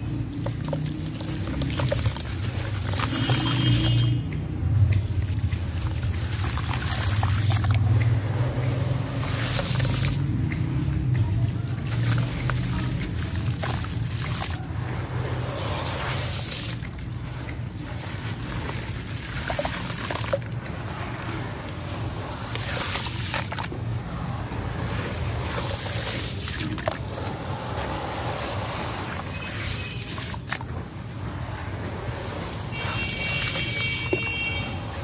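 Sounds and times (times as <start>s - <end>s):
water sloshing and splashing: 0.0s - 35.0s.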